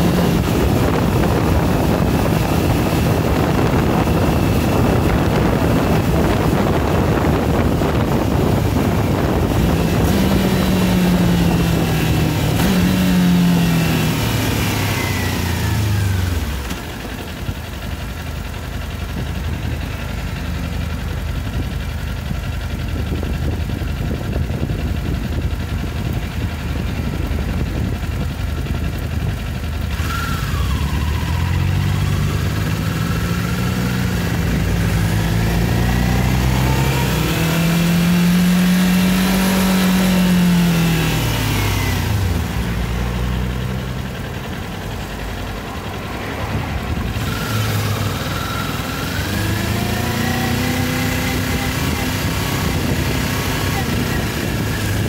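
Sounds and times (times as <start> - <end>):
wind on microphone: 0.0 - 16.6, 22.8 - 43.0, 45.6 - 55.0
motorcycle engine revving: 0.0 - 55.0.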